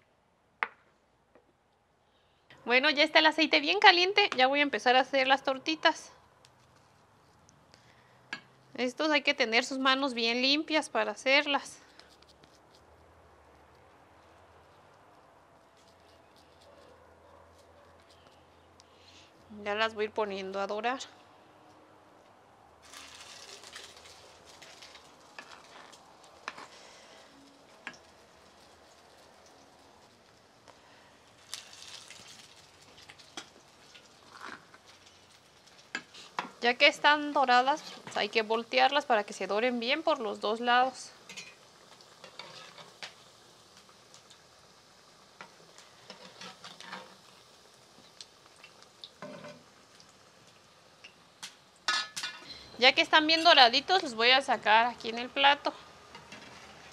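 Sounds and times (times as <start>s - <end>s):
sharp oil crackles: 6.3s - 19.8s, 22.6s - 56.9s
patty sizzling in hot oil: 22.8s - 56.9s
fork and spoon scraping pot: 37.6s - 38.2s, 42.2s - 43.0s.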